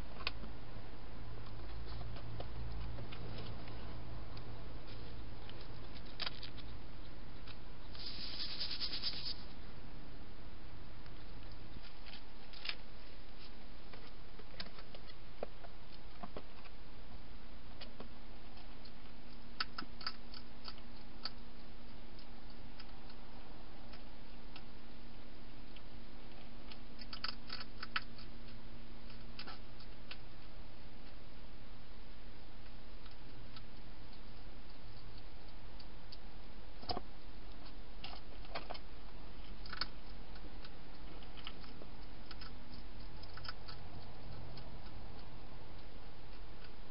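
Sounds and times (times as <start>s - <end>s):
faint low hum: 0.0s - 46.9s
hedgehog crunching food: 1.4s - 9.4s, 17.8s - 24.8s, 25.6s - 30.6s, 32.6s - 46.9s
steady hiss: 7.6s - 13.8s.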